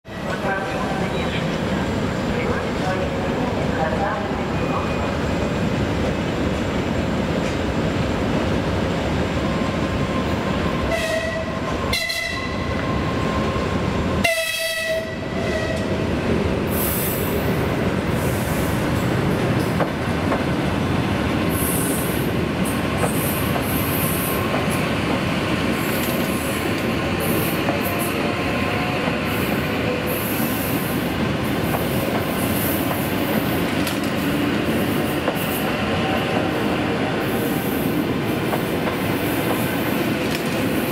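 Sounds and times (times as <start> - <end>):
train running noise: 0.1 - 40.9
train horn blasts: 10.9 - 12.6, 14.2 - 15.9, 27.8 - 30.1, 35.6 - 37.4.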